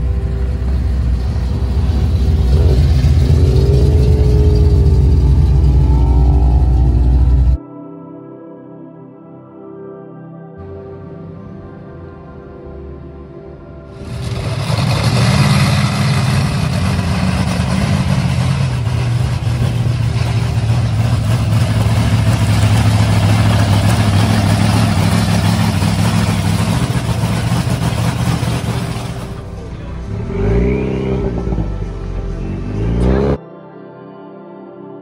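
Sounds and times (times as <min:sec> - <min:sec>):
pickup truck engine revving: 0:00.0 - 0:07.6, 0:14.0 - 0:33.4
truck engine running loudly: 0:00.0 - 0:07.6, 0:14.0 - 0:33.4.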